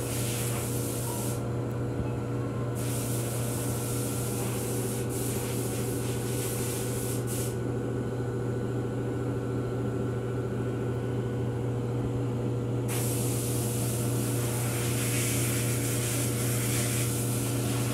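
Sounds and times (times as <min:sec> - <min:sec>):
hiss: 0:00.0 - 0:01.4, 0:02.8 - 0:07.6, 0:12.9 - 0:17.9
low mechanical hum: 0:00.0 - 0:17.9.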